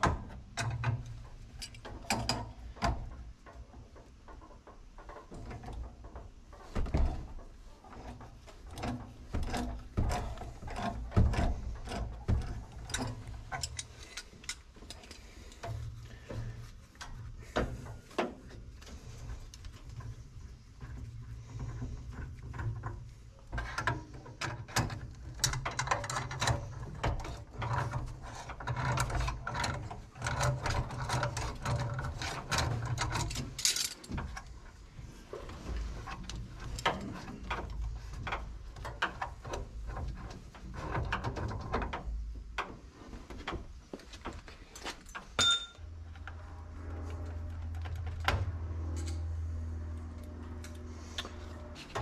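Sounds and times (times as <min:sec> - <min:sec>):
hand tools clicking on metal fittings: 0:08.1 - 0:16.4.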